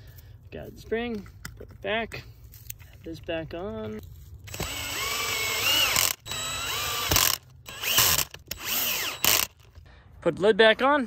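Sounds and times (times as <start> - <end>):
cordless drill motor whine: 4.5 - 9.7.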